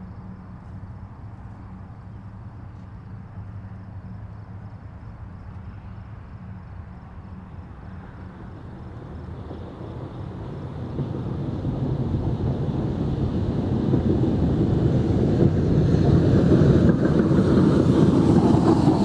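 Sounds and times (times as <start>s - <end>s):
steam locomotive rumble: 5.7s - 19.0s.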